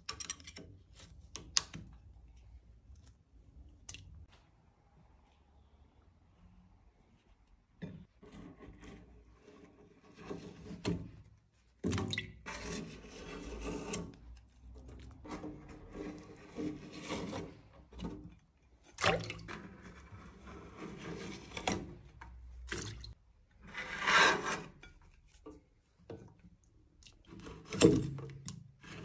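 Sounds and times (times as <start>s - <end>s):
metal scraper scraping wax: 8.0s - 11.0s, 12.4s - 18.0s, 23.6s - 25.2s.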